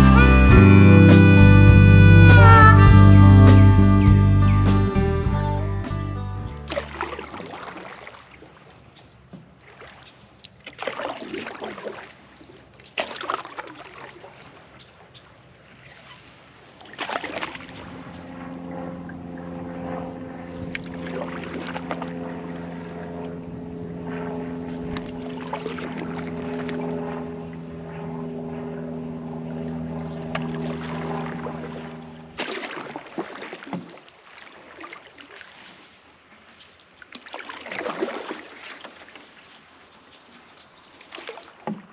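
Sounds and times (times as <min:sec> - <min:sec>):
steady hum with held pitches: 0:00.0 - 0:07.3, 0:17.5 - 0:32.4
canoe paddle strokes in water: 0:06.6 - 0:41.9.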